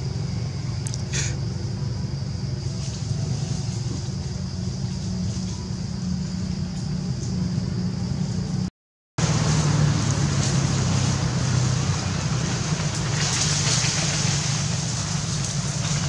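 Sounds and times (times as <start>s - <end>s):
low mechanical hum: 0.0s - 16.0s
hiss: 1.0s - 1.5s, 9.2s - 16.0s.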